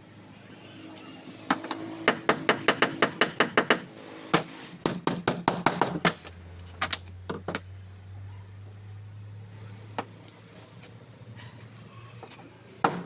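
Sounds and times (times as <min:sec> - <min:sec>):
hammer striking plywood: 0:04.4 - 0:06.2.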